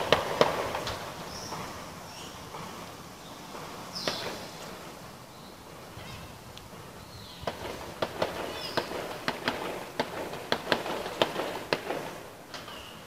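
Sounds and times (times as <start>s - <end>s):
gunshots: 0.0s - 1.0s, 7.5s - 12.2s.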